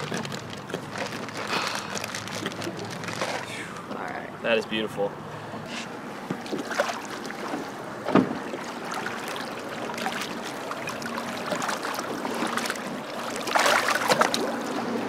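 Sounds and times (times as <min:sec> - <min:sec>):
water lapping against boat: 0:00.0 - 0:04.1, 0:05.6 - 0:15.0
fish splashing: 0:06.4 - 0:15.0.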